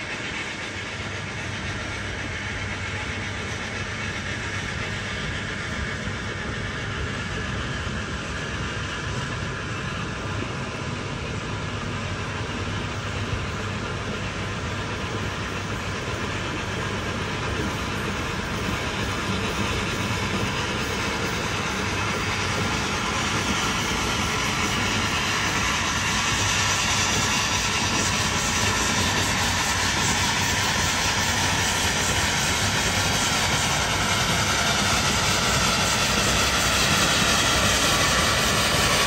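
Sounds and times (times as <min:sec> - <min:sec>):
steam locomotive running slowly: 0:00.0 - 0:39.0.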